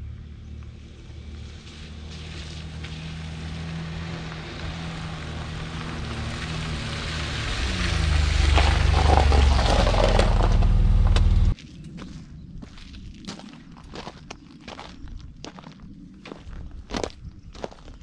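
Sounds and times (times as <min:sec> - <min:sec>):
vehicle engine droning: 0:00.0 - 0:11.6.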